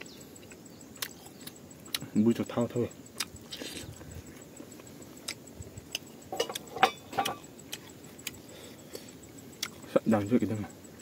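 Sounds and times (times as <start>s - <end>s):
person chewing: 0.0s - 2.2s, 3.1s - 9.9s
wet mouth clicks and smacks: 3.2s - 3.9s.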